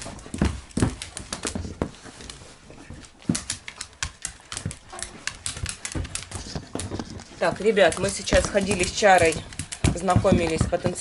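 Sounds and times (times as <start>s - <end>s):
dogs playing: 0.0s - 11.0s
sharp clicks and taps: 3.0s - 11.0s.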